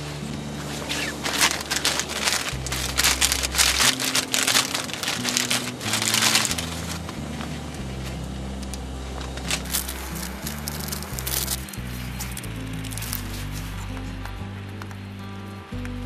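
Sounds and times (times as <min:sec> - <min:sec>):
background music with bass line: 0:00.0 - 0:16.0
plastic packet crinkling: 0:00.7 - 0:07.6, 0:08.7 - 0:13.8.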